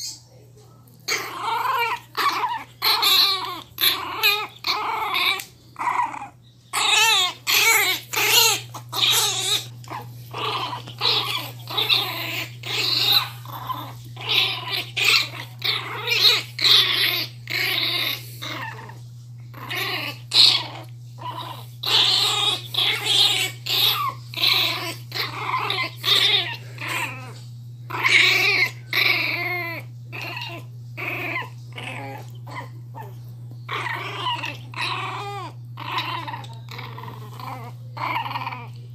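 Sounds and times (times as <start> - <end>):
steady low hum: 0.0 - 38.9
puppy growling and yapping: 0.9 - 38.9.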